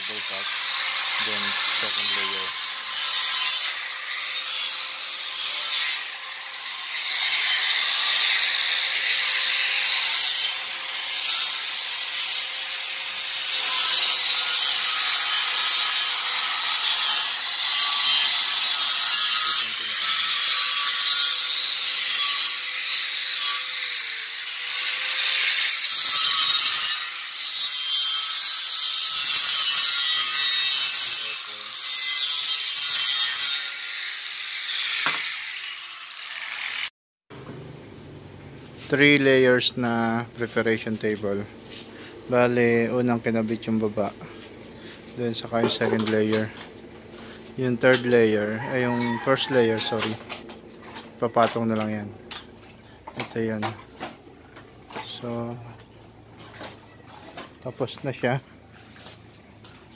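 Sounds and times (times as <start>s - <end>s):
abrasive rasping on steel: 0.0s - 36.9s.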